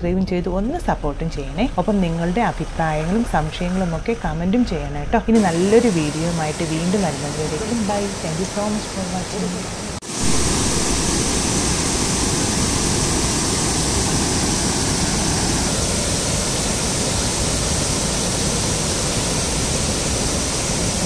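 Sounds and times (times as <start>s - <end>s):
waterfall rushing: 5.4s - 21.0s.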